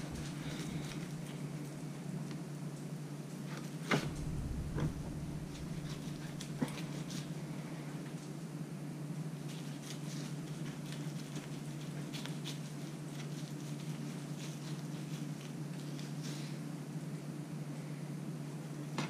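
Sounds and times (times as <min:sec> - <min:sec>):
low hum: 0:04.0 - 0:08.3.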